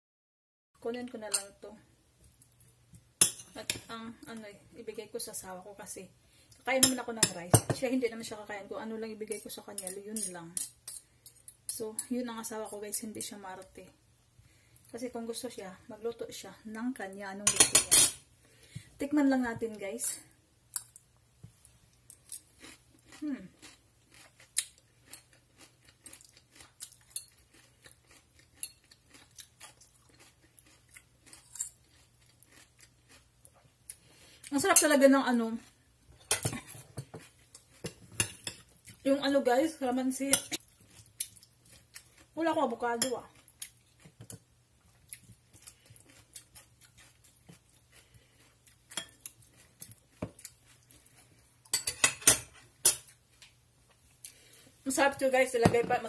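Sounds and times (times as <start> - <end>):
person chewing crunchy food: 21.6 - 34.5, 40.6 - 42.4, 43.3 - 51.7.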